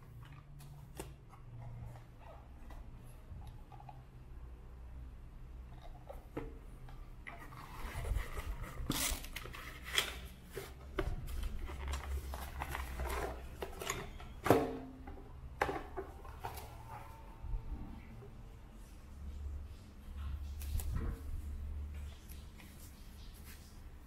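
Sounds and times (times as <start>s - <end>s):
cardboard and tissue paper rustling: 7.1s - 14.3s.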